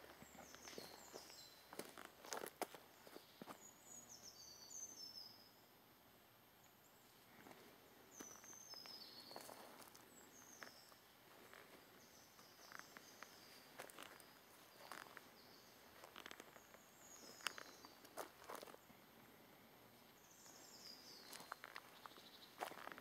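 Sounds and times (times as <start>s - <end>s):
footsteps on dry forest floor: 0.0s - 3.7s, 7.4s - 18.9s, 20.2s - 23.0s
high falling bird chirps: 12.0s - 18.7s.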